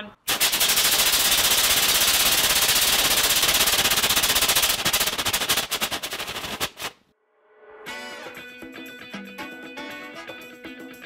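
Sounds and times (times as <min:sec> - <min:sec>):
rocket engine steam hiss crackling: 0:00.3 - 0:07.0.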